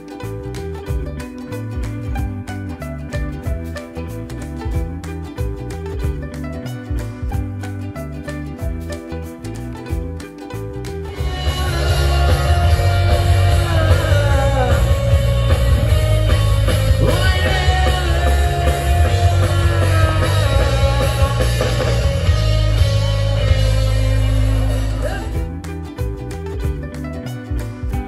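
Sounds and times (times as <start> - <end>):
rock band playing: 0.0 - 28.0
heavy bass line: 0.2 - 28.0
person singing: 11.0 - 26.0.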